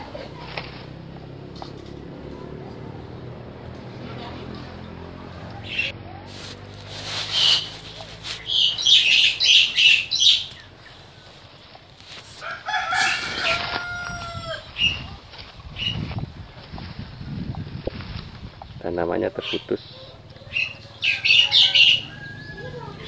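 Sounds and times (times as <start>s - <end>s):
chickens calling harshly: 5.6s - 16.0s, 19.2s - 23.0s
rooster crowing: 12.4s - 14.7s, 20.4s - 23.0s.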